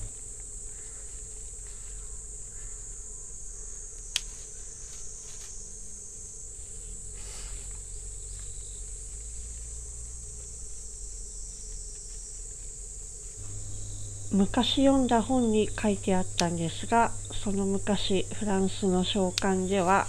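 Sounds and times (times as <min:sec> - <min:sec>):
insects trilling: 0:00.0 - 0:20.0
scissors snipping stems: 0:04.0 - 0:05.0, 0:15.1 - 0:17.6, 0:18.4 - 0:20.0
faint clicks: 0:15.7 - 0:17.6, 0:19.1 - 0:19.9.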